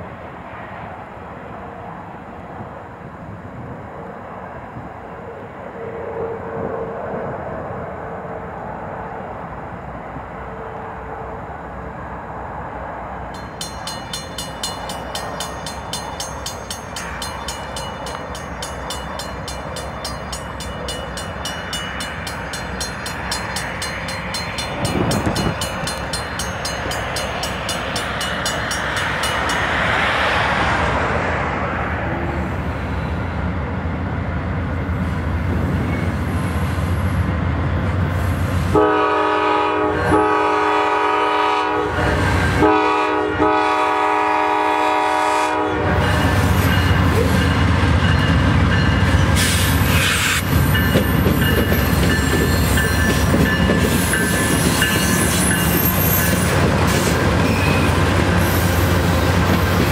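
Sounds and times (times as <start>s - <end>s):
train engine rumble: 0.0s - 59.9s
train wheel noise: 12.2s - 45.0s, 45.7s - 59.9s
locomotive air horn: 38.7s - 46.5s, 49.4s - 50.4s.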